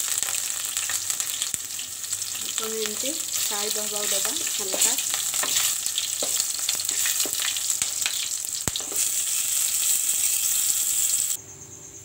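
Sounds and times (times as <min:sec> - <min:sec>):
oil sizzling and crackling: 0:00.0 - 0:11.4
wooden spatula stirring: 0:03.2 - 0:08.2.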